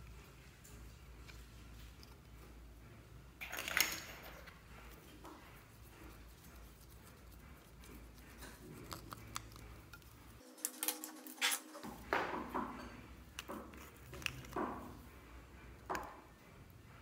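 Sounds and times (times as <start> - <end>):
brush dabbing in powder compact: 4.9 - 10.4
plastic cosmetic containers clicking: 13.4 - 14.9.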